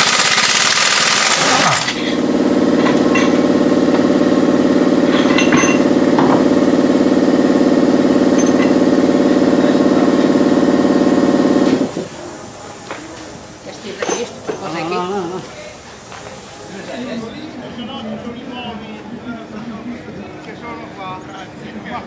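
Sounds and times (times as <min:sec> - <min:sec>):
impact wrench hammering rattle: 0:00.0 - 0:15.1
air hissing: 0:00.0 - 0:17.4.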